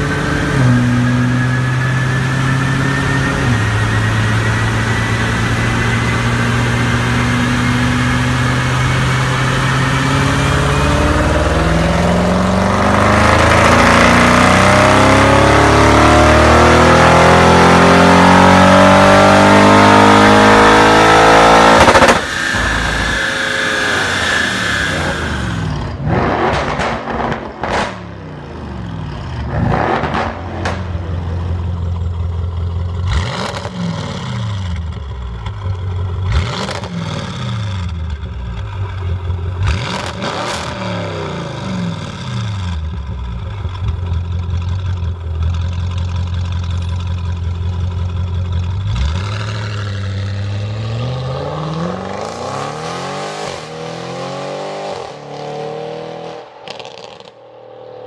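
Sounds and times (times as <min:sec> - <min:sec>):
car accelerating away: 0:00.0 - 0:27.9, 0:28.5 - 0:58.0
car engine revving: 0:00.0 - 0:58.0
exhaust cracks and pops: 0:26.4 - 0:28.0, 0:56.6 - 0:57.4.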